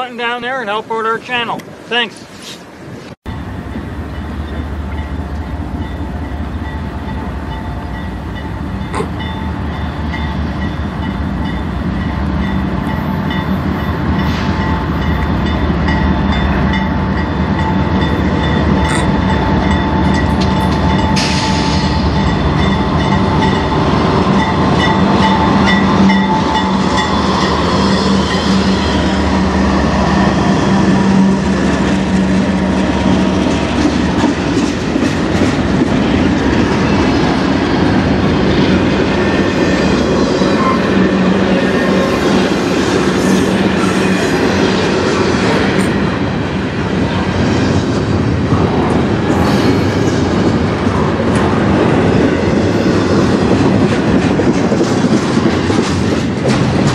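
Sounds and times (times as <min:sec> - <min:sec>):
diesel locomotive engines: 0:00.0 - 0:56.9
train wheels clicking over rail joints: 0:31.6 - 0:38.1, 0:47.8 - 0:56.9.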